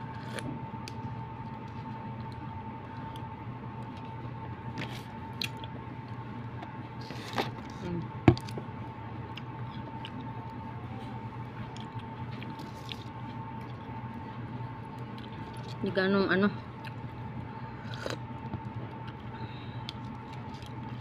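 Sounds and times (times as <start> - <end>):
electrical hum: 0.0 - 21.0
quiet chewing: 9.3 - 10.6.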